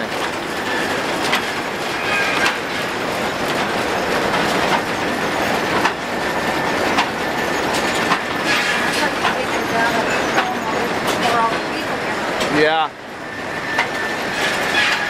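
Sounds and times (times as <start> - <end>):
sharp knocks and clanks: 0.0 - 11.8, 13.7 - 15.0
sawmill machinery clatter: 0.0 - 15.0
faint squeal: 1.9 - 2.8, 13.2 - 15.0.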